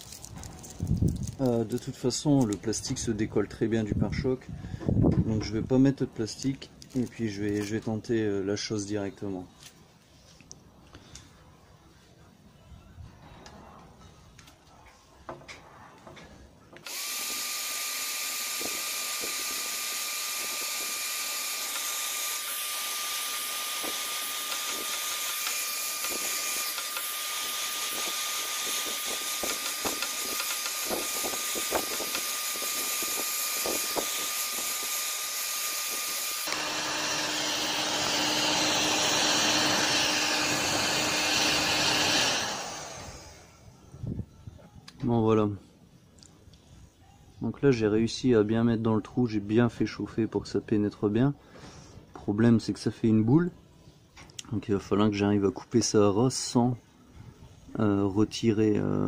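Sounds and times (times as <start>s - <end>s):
heat gun fan blowing with whine: 16.8s - 44.2s.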